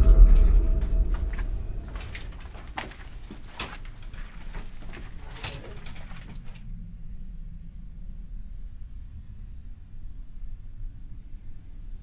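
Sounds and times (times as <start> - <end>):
footsteps on debris: 0.0 - 6.6
steady low rumble: 0.0 - 12.0.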